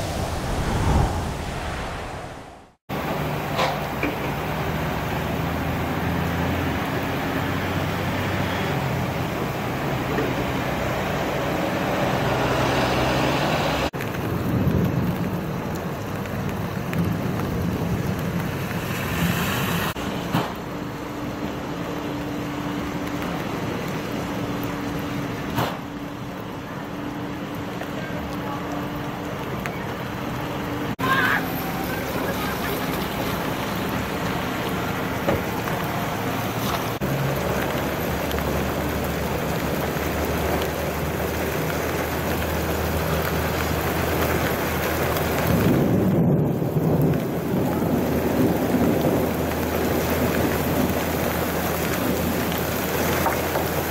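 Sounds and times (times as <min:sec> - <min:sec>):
high wind: 0:00.0 - 0:03.0, 0:45.0 - 0:52.9
vehicle engines humming: 0:00.0 - 0:53.9
heavy rain on pavement: 0:02.9 - 0:53.9.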